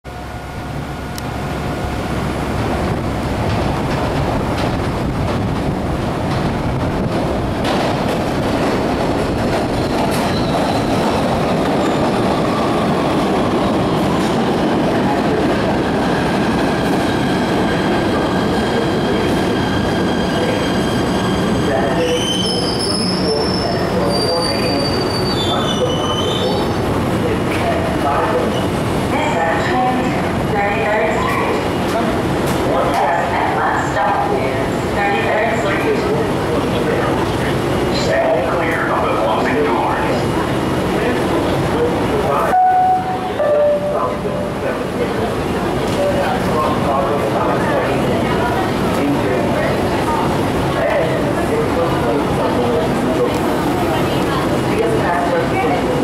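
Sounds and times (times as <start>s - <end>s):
train wheels rumbling on rails: 1.0s - 42.4s
train brakes squealing: 9.8s - 11.0s, 18.4s - 26.8s.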